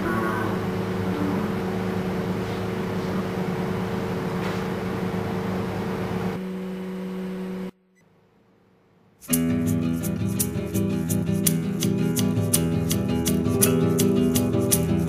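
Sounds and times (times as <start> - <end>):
milling machine humming and whining: 0.0 - 7.8.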